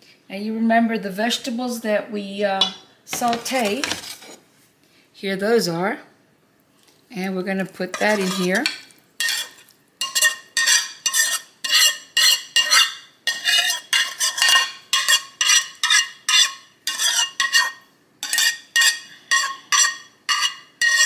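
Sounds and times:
metal spoon scraping bowl: 0:02.6 - 0:04.4, 0:07.9 - 0:21.0.

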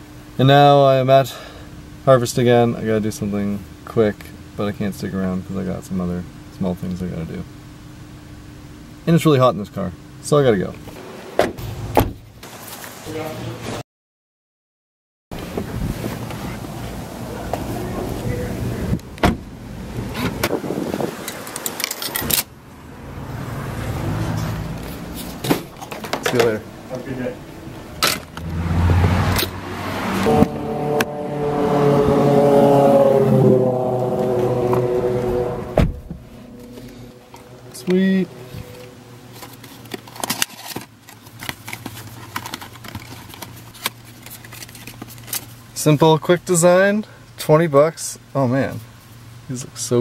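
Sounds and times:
steady low hum: 0:00.0 - 0:11.0
outdoor background noise: 0:00.0 - 0:13.8, 0:15.4 - 0:50.0
car door shutting: 0:11.3 - 0:12.3, 0:18.9 - 0:22.5, 0:34.2 - 0:36.3
cardboard and paper rustling: 0:38.5 - 0:45.7.

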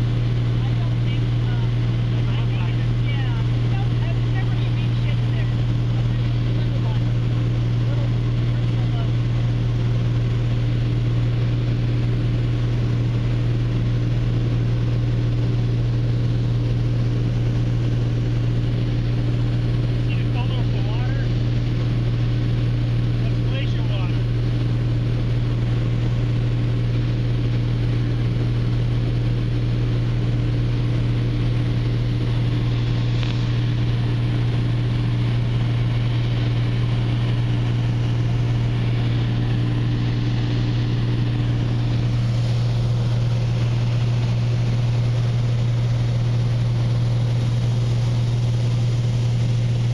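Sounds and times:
light airplane engine hum in cabin: 0:00.0 - 0:49.9.

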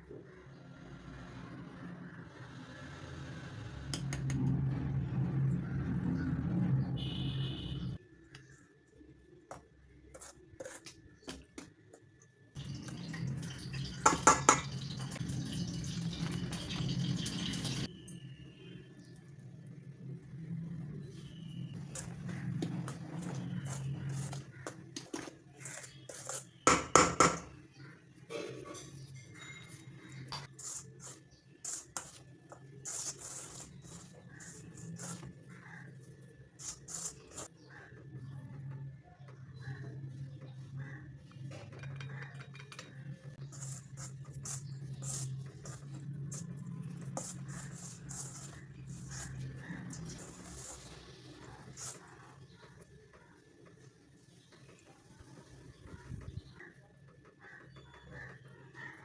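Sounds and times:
hand mixing flour in a metal bowl: 0:09.5 - 0:11.9, 0:21.1 - 0:27.2, 0:29.0 - 0:37.9, 0:43.4 - 0:53.8.

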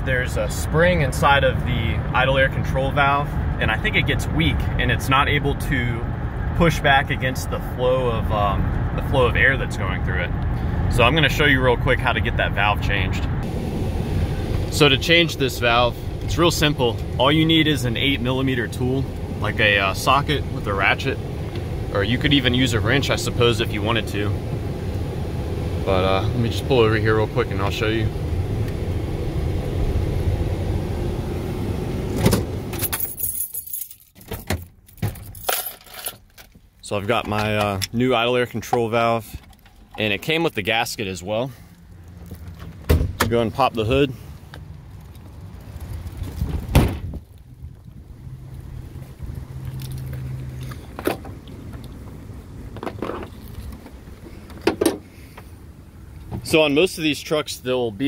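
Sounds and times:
truck engine droning: 0:00.0 - 0:32.9
low steady hum: 0:00.0 - 0:33.9
light metallic jingling and clicking: 0:32.8 - 0:36.6
car hood knocks and clunks: 0:46.4 - 0:47.2.

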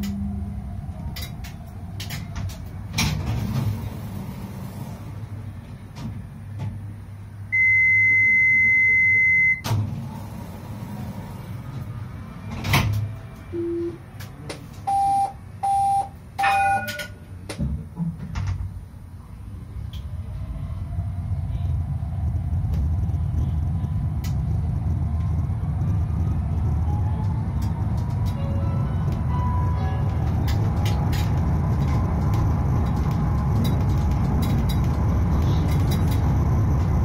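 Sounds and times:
tram cab humming: 0:00.0 - 0:37.0
electronic warning beeps: 0:07.6 - 0:09.6, 0:14.9 - 0:17.1.

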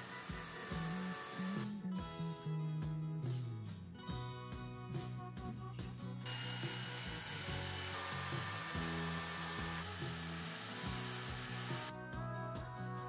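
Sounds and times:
rotary wire brush on metal: 0:00.0 - 0:01.7, 0:06.3 - 0:11.9
background music: 0:00.0 - 0:13.0.

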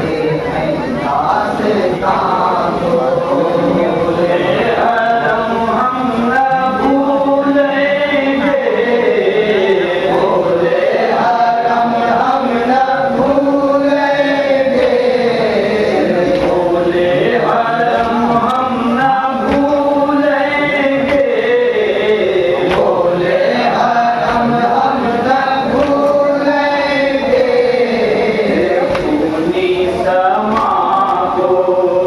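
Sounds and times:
men chanting into a microphone: 0:00.0 - 0:32.0.

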